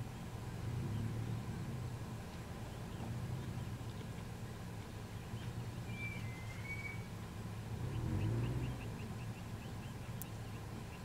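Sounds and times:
vehicle engine idling: 0:00.0 - 0:11.0
bird chirps: 0:05.2 - 0:07.1, 0:07.8 - 0:11.0
bird whistle: 0:05.9 - 0:07.1.

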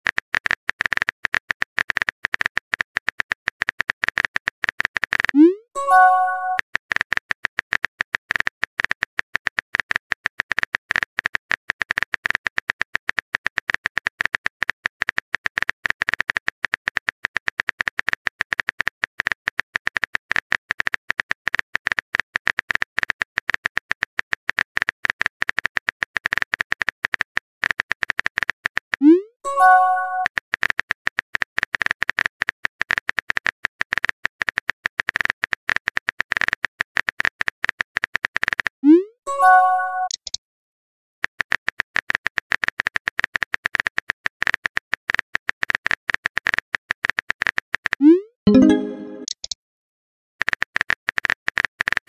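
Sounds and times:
message pop chime: 0:05.4 - 0:06.6, 0:29.5 - 0:30.3, 0:39.3 - 0:40.3, 0:48.5 - 0:49.4.

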